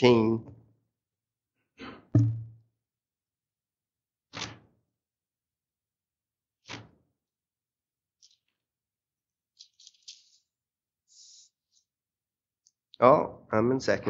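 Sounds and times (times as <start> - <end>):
soft thump: 2.2 - 2.6.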